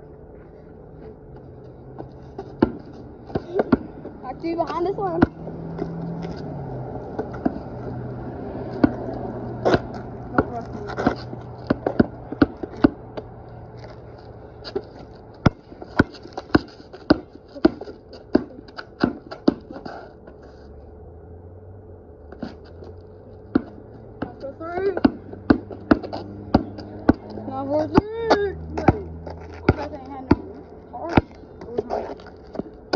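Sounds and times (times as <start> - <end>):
basketball bouncing on concrete: 1.9 - 6.5, 7.1 - 13.3, 14.6 - 19.9, 23.5 - 32.9.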